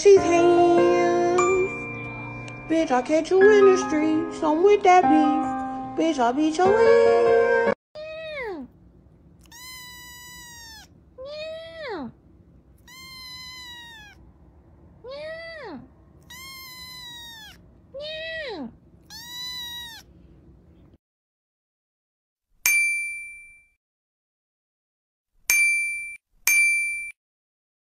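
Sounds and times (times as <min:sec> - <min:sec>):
kitten meowing: 0:09.4 - 0:11.9, 0:12.8 - 0:14.2, 0:15.0 - 0:20.1.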